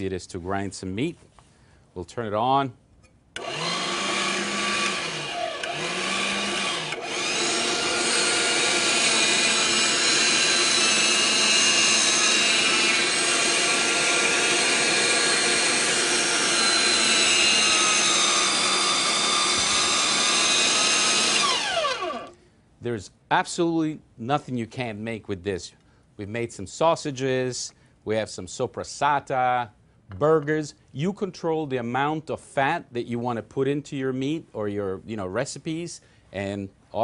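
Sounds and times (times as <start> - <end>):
electric meat grinder whining: 3.4 - 22.4.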